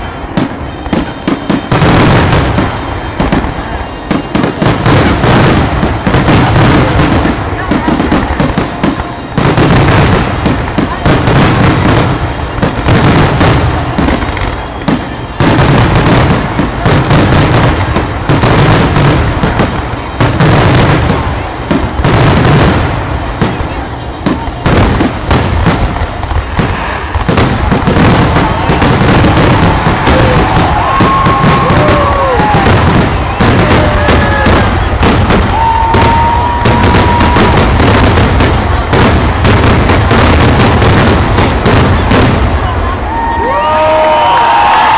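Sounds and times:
long steady whistle: 0.0s - 4.6s
firework shells booming: 0.0s - 42.8s.

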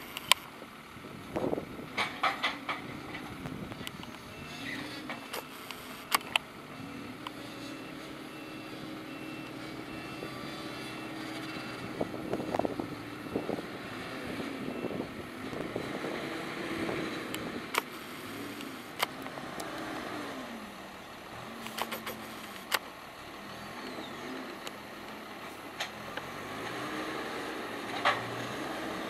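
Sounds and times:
diesel engine revving: 0.0s - 29.0s
reversing alarm beeping: 6.9s - 15.3s.

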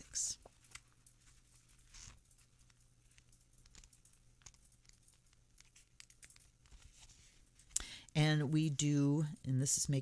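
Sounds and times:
paper rustling: 0.4s - 7.7s.

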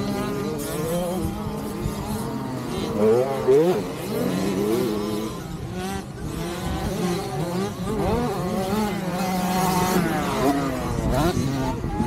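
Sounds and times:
motocross bikes revving: 0.0s - 12.0s.

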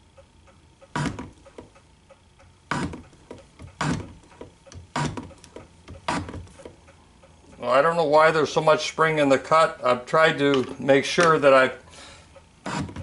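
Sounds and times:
faint steady ticking: 0.0s - 8.6s, 11.8s - 13.0s.

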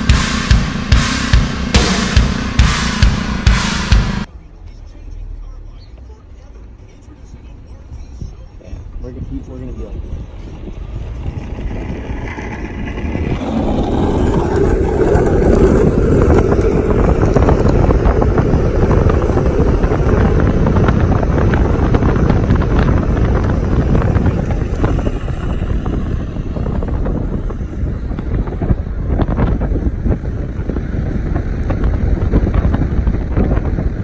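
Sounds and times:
car road noise: 0.0s - 34.0s
wind buffeting microphone: 7.8s - 34.0s.

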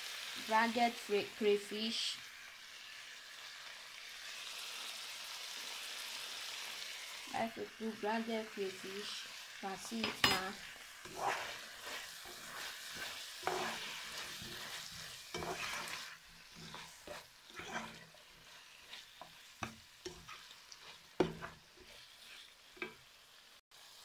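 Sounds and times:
stew sizzling in a frying pan: 0.0s - 24.0s
spatula scraping a pan: 9.0s - 23.1s.

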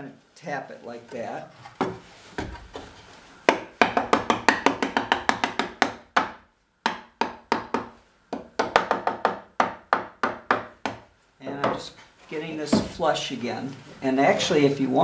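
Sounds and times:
hammer tapping on wood: 3.5s - 11.0s.

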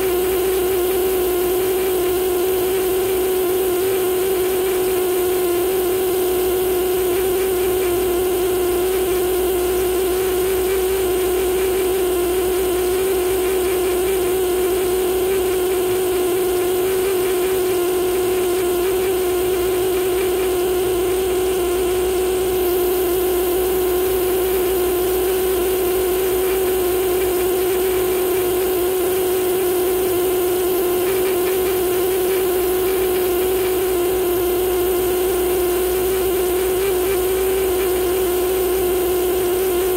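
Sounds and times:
air scribe buzzing on stone: 0.0s - 39.9s.

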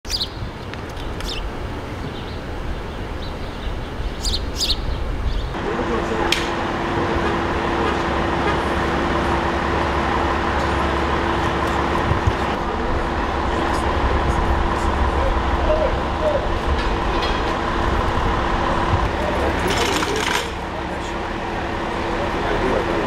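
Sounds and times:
fire engines idling: 0.5s - 23.0s
low rumble: 5.1s - 19.6s.

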